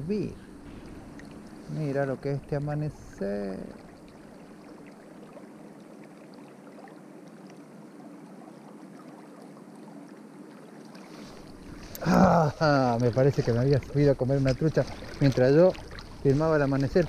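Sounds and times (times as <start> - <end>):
river water flowing and lapping: 0.0 - 17.0
water trickling ticks: 0.6 - 11.0, 11.8 - 17.0.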